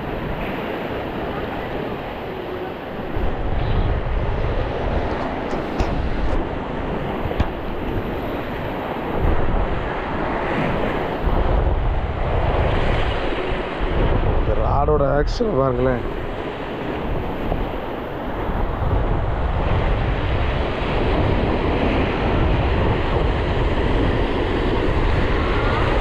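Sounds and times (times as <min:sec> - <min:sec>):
surf washing: 0:00.0 - 0:26.0
wind buffeting microphone: 0:00.0 - 0:26.0.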